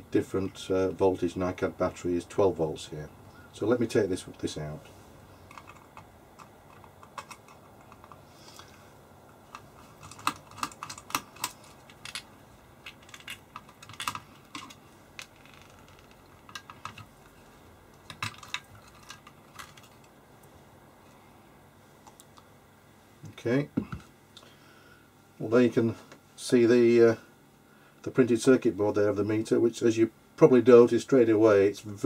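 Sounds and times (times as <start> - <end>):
small clicks and light knocks: 4.8 - 20.6.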